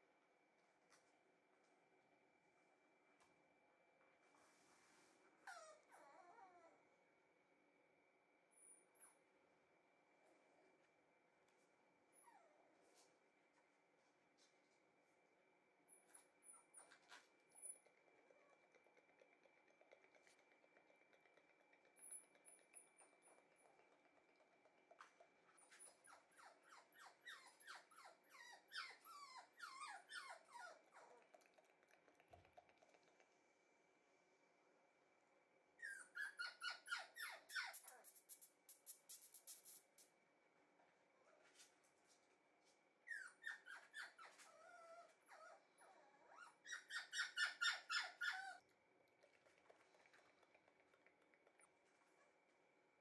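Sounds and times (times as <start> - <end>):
puppy whining: 5.4 - 6.8, 12.1 - 12.8, 25.5 - 31.4, 35.8 - 38.5, 43.0 - 48.7.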